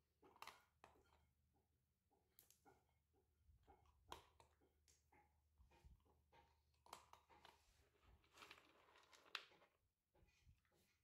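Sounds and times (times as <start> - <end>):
faint clicks and rustles: 3.6 - 11.0
kibble scooped in plastic bowl: 7.4 - 9.8.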